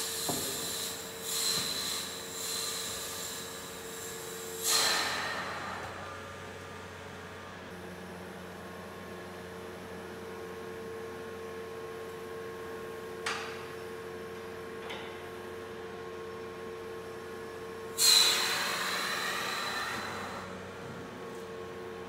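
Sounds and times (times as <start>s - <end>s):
whistling hiss of air: 0.0s - 5.8s, 18.0s - 20.5s.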